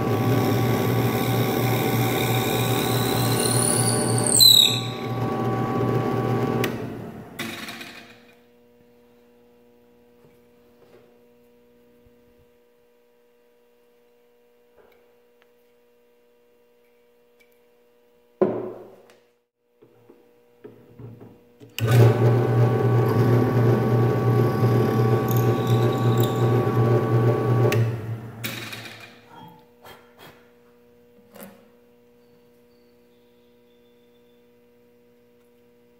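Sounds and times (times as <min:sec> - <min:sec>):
drill press motor and cutting: 0:00.0 - 0:08.1, 0:21.8 - 0:29.0.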